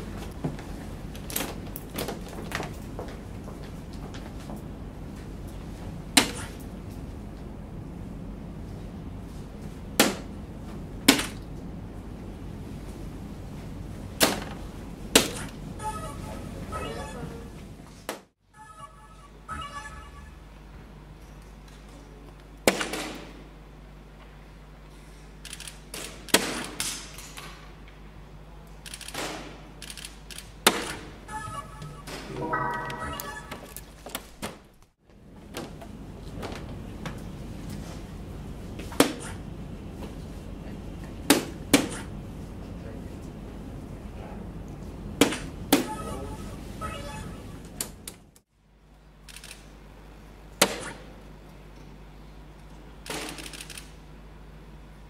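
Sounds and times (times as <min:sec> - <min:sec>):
electronic hit effects: 0:32.3 - 0:33.8
short electronic jingle: 0:32.3 - 0:33.8
darts hitting electronic dartboard: 0:50.6 - 0:51.1.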